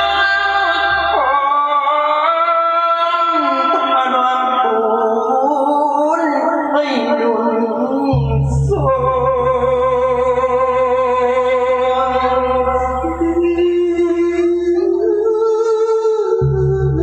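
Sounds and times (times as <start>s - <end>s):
person singing long held notes: 0.0s - 17.0s
steady low backing: 7.9s - 17.0s.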